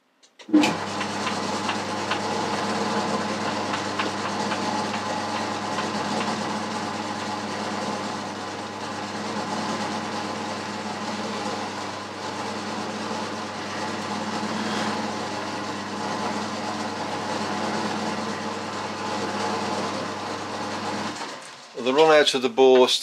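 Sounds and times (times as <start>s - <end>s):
metal lathe running: 0.5s - 21.4s.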